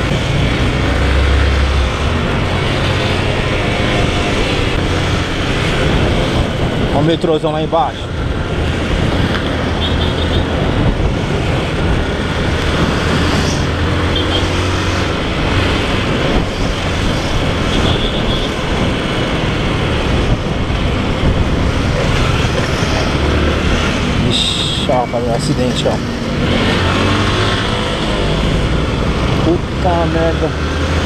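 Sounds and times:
road noise: 0.0s - 31.0s
wind rushing on microphone: 0.0s - 31.0s.

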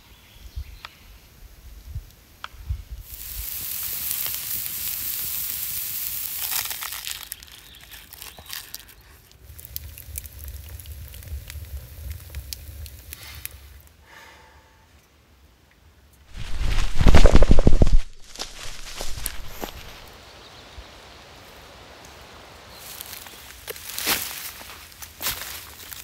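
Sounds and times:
steaks sizzling on grill: 3.0s - 7.8s
wood fire crackling in stove: 3.0s - 14.0s, 16.3s - 20.1s, 22.8s - 26.0s.

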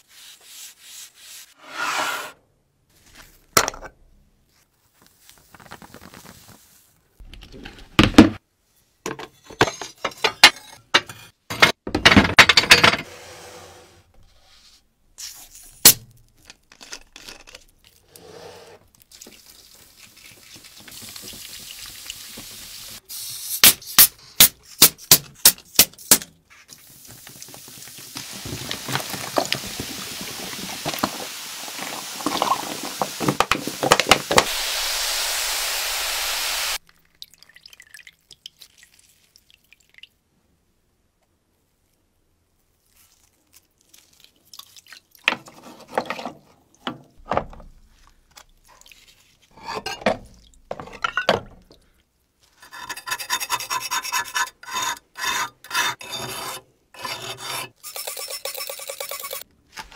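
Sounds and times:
liquid pouring: 36.8s - 40.1s.

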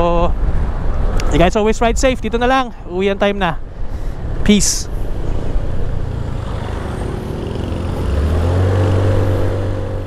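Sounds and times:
vehicle engine speeding up: 4.2s - 10.0s.

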